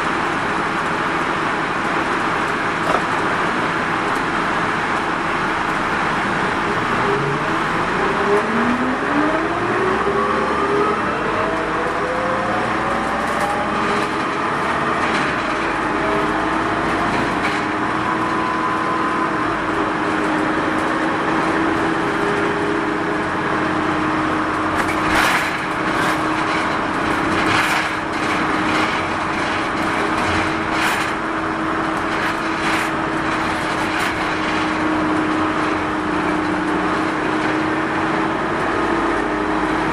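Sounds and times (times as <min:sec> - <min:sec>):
minibus engine whine: 0:00.0 - 0:39.9
body knocks and rattles: 0:02.8 - 0:03.2.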